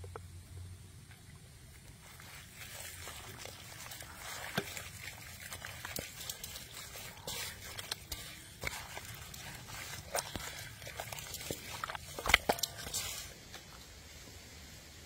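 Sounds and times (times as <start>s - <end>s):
hands squishing wet meat: 1.9s - 13.8s
small clicks and crackles: 2.7s - 13.8s.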